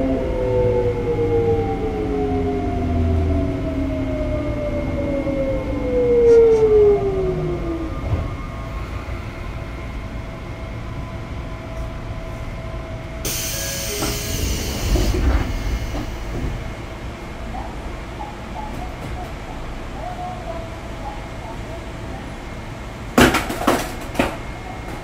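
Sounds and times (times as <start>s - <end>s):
low train running rumble: 0.0s - 25.0s
train inverter whining: 0.0s - 25.0s
compressed air hiss: 13.3s - 16.5s.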